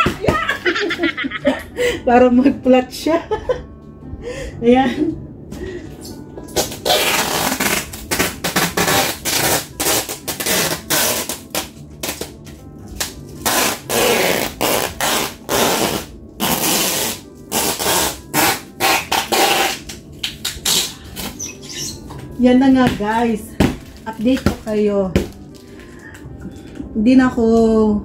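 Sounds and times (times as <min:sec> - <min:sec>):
plastic wrap crinkling: 0:19.2 - 0:26.7.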